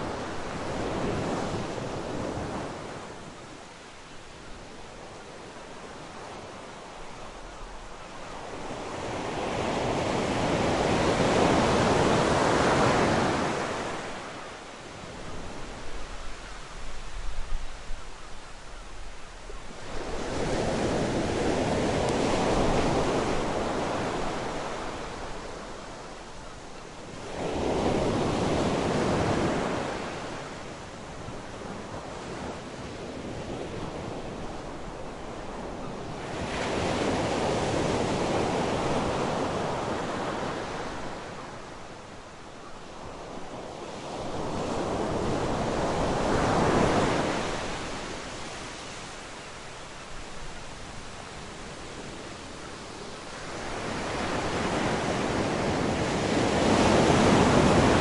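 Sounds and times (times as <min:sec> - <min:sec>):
sea waves breaking on beach: 0:53.2 - 0:58.0.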